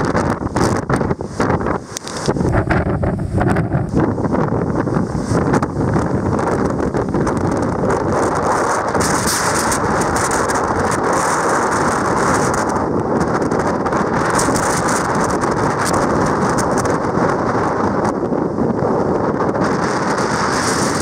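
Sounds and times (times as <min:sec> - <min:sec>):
heavy surf breaking: 0:00.0 - 0:21.0
strong wind buffeting microphone: 0:00.0 - 0:21.0.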